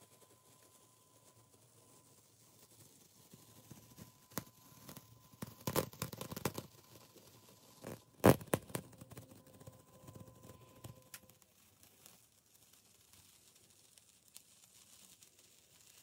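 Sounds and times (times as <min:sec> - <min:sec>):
masking tape peeling: 0:07.8 - 0:09.1.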